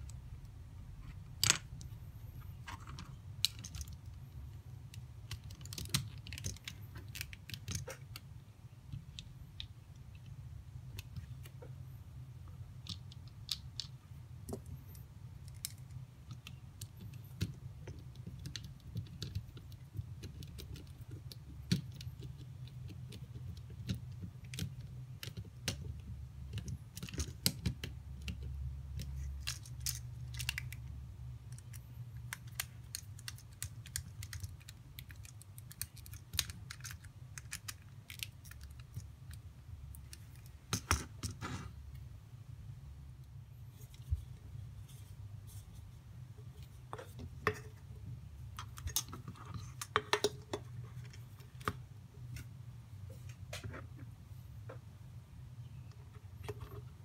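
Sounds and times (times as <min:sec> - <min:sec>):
low steady hum: 0:00.0 - 0:57.0
clicks of plastic parts handled: 0:26.5 - 0:30.9.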